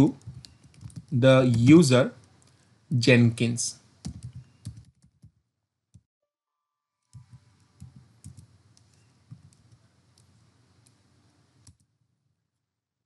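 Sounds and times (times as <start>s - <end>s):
computer keyboard typing: 0.0s - 2.6s, 4.0s - 5.4s, 7.1s - 11.0s
light hiss: 7.1s - 11.7s.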